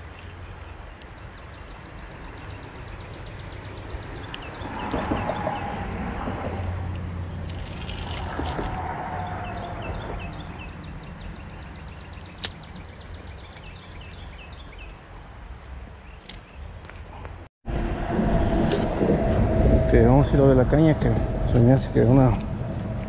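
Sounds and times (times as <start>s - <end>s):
songbird chirping: 0.0s - 6.0s, 6.6s - 17.0s
sharp click: 12.4s - 12.6s
low rumble: 17.6s - 23.0s.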